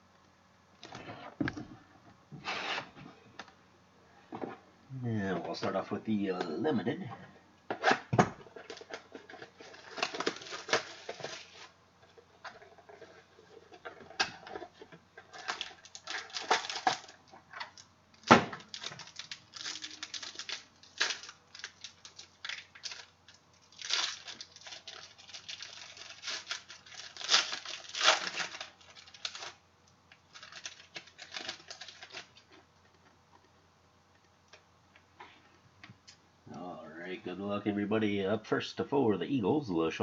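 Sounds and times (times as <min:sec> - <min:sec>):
plastic card sleeves crinkling: 0:08.6 - 0:11.8, 0:18.6 - 0:33.1.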